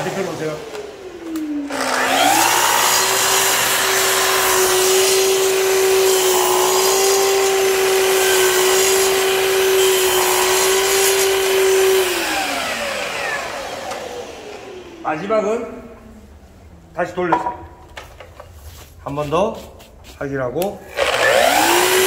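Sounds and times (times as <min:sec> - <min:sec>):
miter saw cutting wood: 0:00.0 - 0:15.0, 0:20.9 - 0:22.0
dust extractor hissing: 0:00.0 - 0:15.2.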